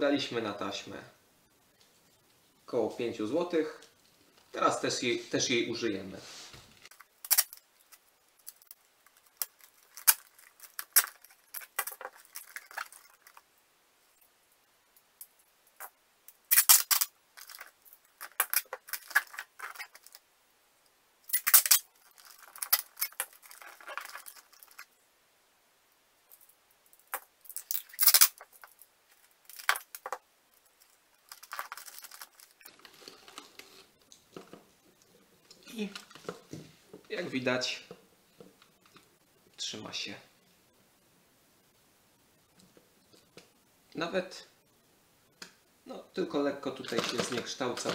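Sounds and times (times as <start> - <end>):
packing tape ripping off roll: 6.9 - 13.4, 16.5 - 20.2, 21.3 - 24.9, 27.1 - 28.6, 46.8 - 47.9.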